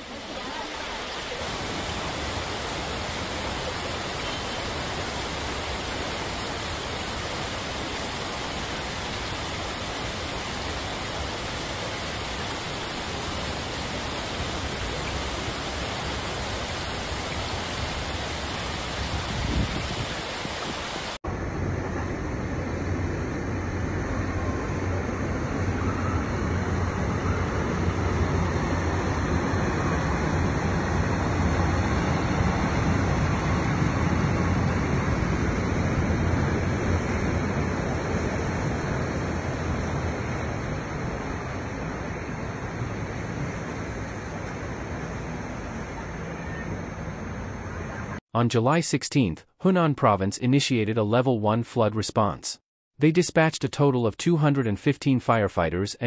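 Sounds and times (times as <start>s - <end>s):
floodwater rushing over kerb: 0.0s - 21.2s.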